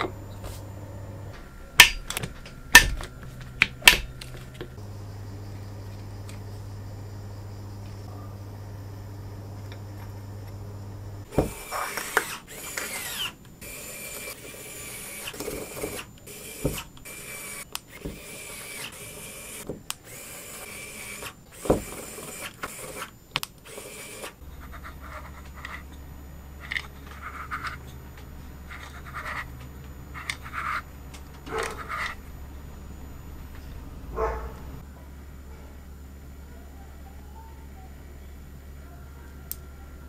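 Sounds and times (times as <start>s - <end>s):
low steady hum: 0.0s - 40.0s
electric screwdriver whirring: 11.3s - 24.4s.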